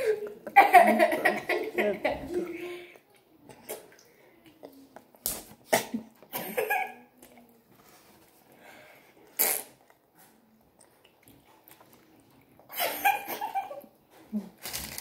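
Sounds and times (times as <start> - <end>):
chewing and mouth noises: 9.2 - 12.7
sharp lip smacking: 9.4 - 9.9.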